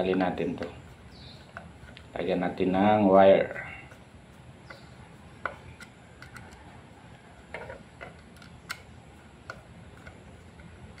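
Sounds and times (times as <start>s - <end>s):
screwdriver clicks and ticks: 5.7s - 6.6s, 8.0s - 11.0s.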